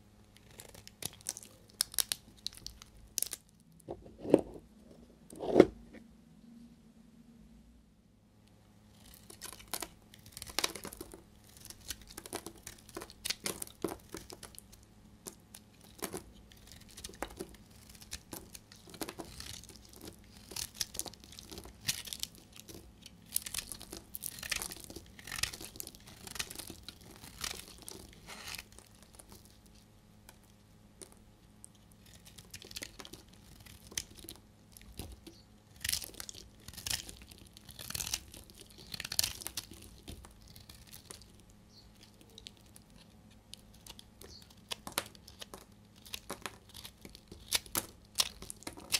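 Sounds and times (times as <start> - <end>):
knife scraping soap: 15.9 - 29.5, 34.9 - 41.2.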